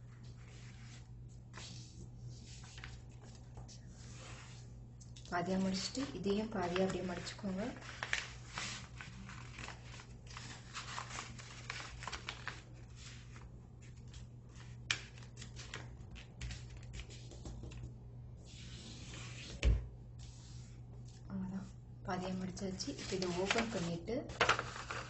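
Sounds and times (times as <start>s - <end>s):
paper rustling and crinkling: 0.1s - 17.8s, 22.7s - 25.0s.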